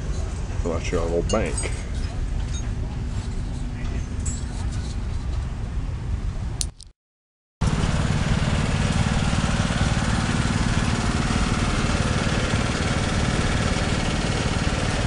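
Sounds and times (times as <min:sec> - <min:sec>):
small engine running: 0:07.6 - 0:15.0.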